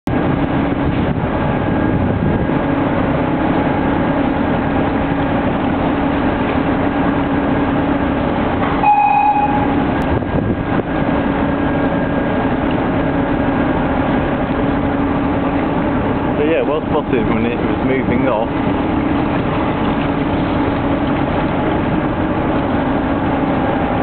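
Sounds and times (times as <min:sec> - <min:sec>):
low engine drone: 0:00.0 - 0:24.0
water noise: 0:00.0 - 0:24.0
wind: 0:00.0 - 0:24.0
horn toot: 0:08.8 - 0:09.8.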